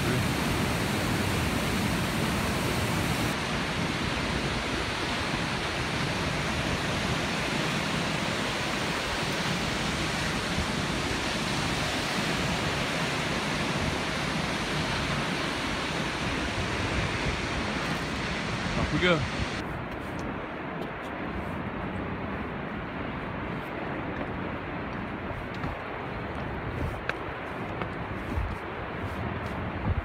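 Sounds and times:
waterfall roaring: 0.0 - 19.6, 20.4 - 29.8.

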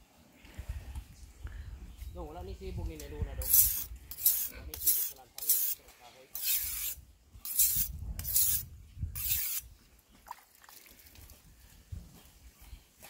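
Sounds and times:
knife grinding on sharpening stone: 3.4 - 8.6, 9.2 - 9.6.

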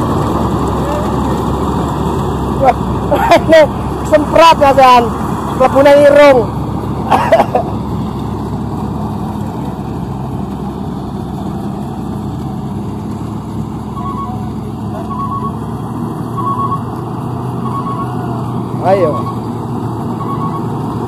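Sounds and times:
combine harvester running: 0.0 - 21.0
electronic beeps: 14.0 - 14.4, 15.1 - 15.6, 16.4 - 16.9, 17.6 - 18.1, 19.0 - 19.4, 20.2 - 20.7.

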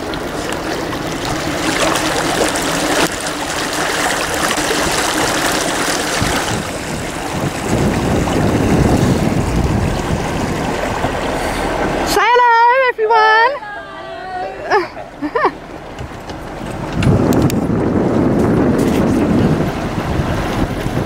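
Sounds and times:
rushing water: 0.0 - 21.0
wind buffeting microphone: 4.0 - 12.1, 15.6 - 21.0.

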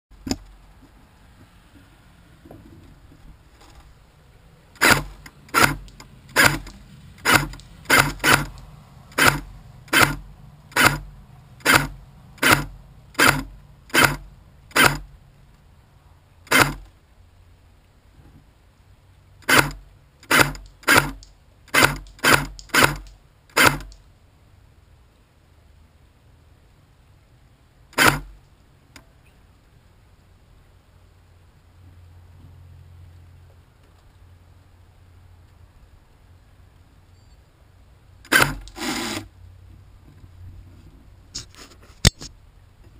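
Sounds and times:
airsoft gun shots snapping: 19.5 - 24.0.

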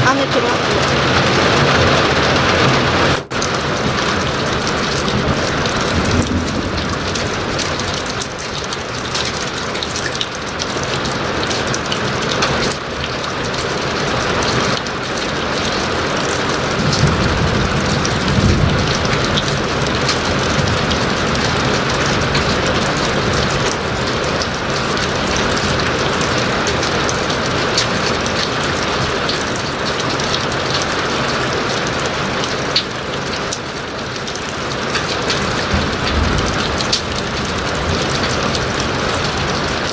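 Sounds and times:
thunder rumble: 0.0 - 10.3, 14.4 - 30.1, 34.8 - 39.9
heavy rain falling: 0.0 - 39.9.

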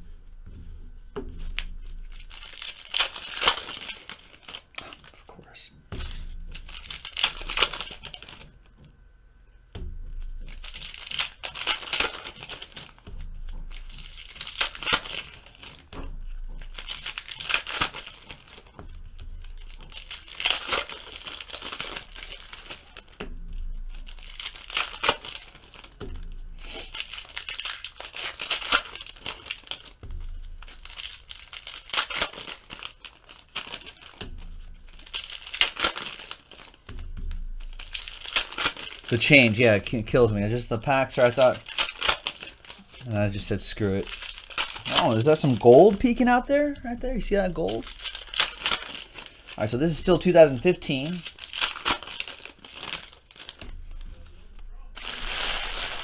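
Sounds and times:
foil packs tearing and crinkling: 1.4 - 8.6, 10.2 - 56.0
cards being handled: 10.1 - 56.0.

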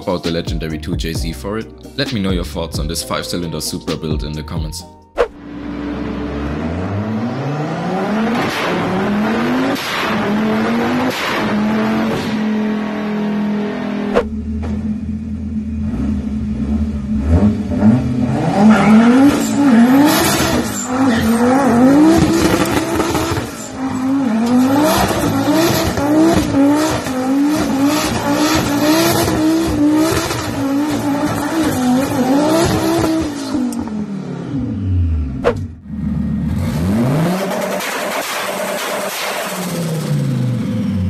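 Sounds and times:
another engine revving: 5.3 - 41.0
car engine revving hard: 5.4 - 41.0
tyre squeal: 18.5 - 25.9.

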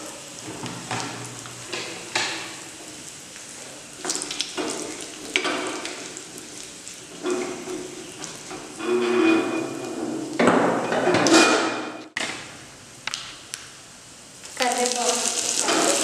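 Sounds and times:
spices sizzling in hot oil: 0.0 - 10.4, 12.6 - 16.0
spatula scraping a steel pan: 8.7 - 9.9.

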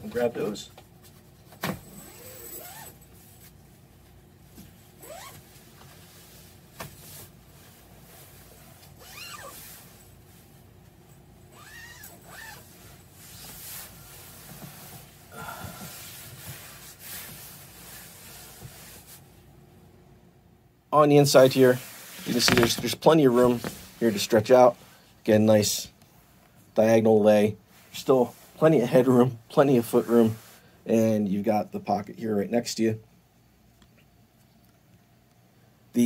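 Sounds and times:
hammock fabric rustling: 1.2 - 19.4, 21.5 - 24.4
zipper being drawn: 1.8 - 3.0, 5.0 - 5.4, 8.9 - 10.0, 11.5 - 13.9.

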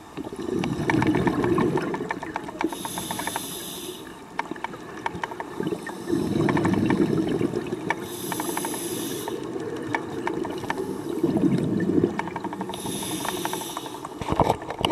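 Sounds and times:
exhaled bubbles rushing: 0.0 - 2.5, 4.6 - 8.3, 9.3 - 13.0
regulator inhalation hiss: 2.7 - 4.2, 8.0 - 9.5, 12.8 - 14.1
light clicking and crackling: 4.3 - 14.9.

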